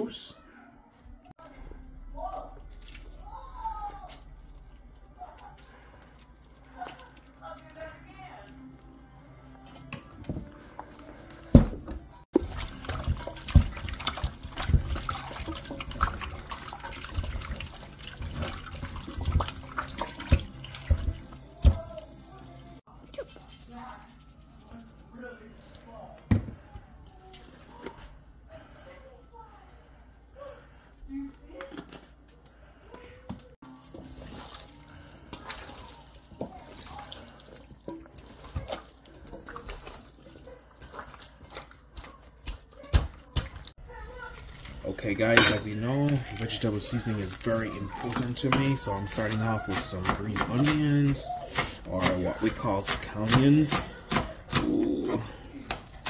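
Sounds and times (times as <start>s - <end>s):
wet squelches of raw meat: 1.6s - 9.1s, 33.7s - 43.8s
knocks and splashes: 11.5s - 22.1s, 33.6s - 55.0s
tap water running: 11.5s - 24.8s, 33.6s - 54.3s.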